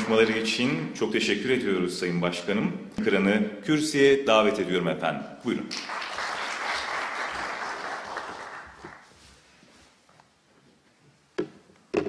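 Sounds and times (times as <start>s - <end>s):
audience applauding: 0.0s - 0.6s, 5.7s - 9.1s.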